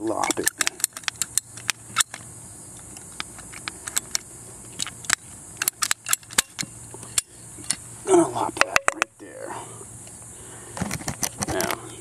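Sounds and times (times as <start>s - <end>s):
pipe cutters clicking: 0.0s - 2.3s, 2.9s - 7.8s.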